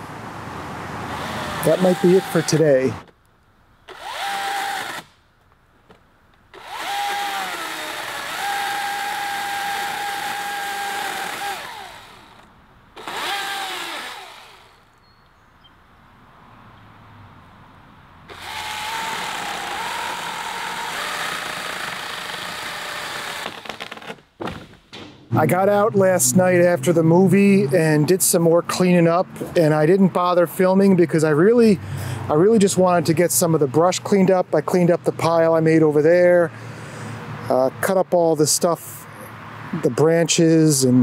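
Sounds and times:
electric chainsaw motor whine: 0:01.1 - 0:03.0, 0:03.9 - 0:05.1, 0:06.5 - 0:14.9, 0:18.3 - 0:24.2.

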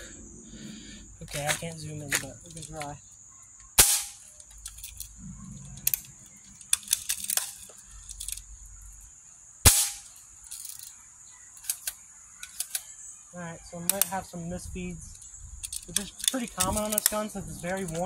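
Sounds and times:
clicks and rattles of gun handling: 0:01.3 - 0:02.9, 0:04.2 - 0:08.5, 0:09.9 - 0:11.0, 0:11.6 - 0:13.0, 0:15.1 - 0:18.0
bb gun shots: 0:03.8 - 0:04.2, 0:09.6 - 0:10.1.

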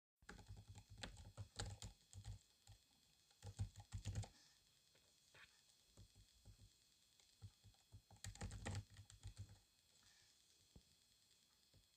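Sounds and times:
tapping and clicking: 0:07.4 - 0:09.6.

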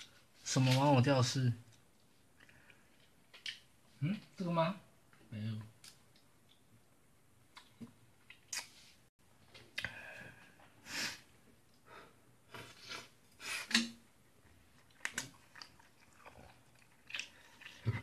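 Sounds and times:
person chewing food: 0:01.7 - 0:03.7, 0:14.6 - 0:18.0.

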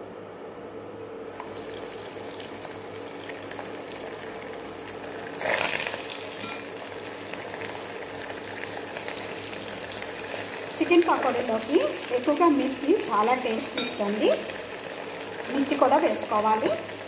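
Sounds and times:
food sizzling in hot oil: 0:01.2 - 0:17.0.

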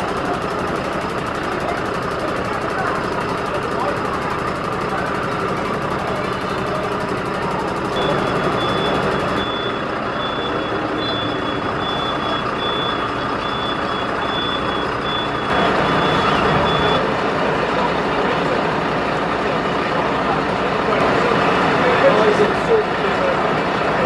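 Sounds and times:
diesel engine running: 0:00.0 - 0:24.0
reversing alarm beeps: 0:07.7 - 0:17.0.

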